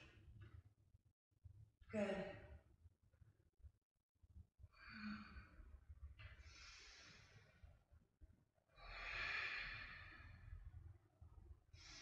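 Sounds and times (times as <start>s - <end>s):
woman breathing slowly: 4.7s - 8.0s, 8.7s - 10.9s, 11.6s - 12.0s.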